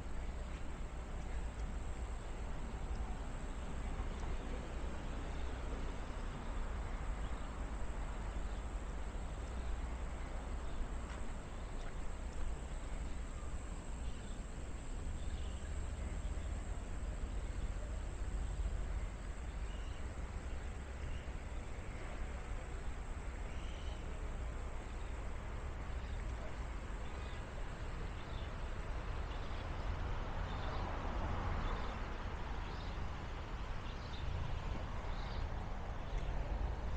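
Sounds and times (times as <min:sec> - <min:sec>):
insects buzzing: 0:00.0 - 0:29.6
faint bird chirps: 0:23.4 - 0:24.1.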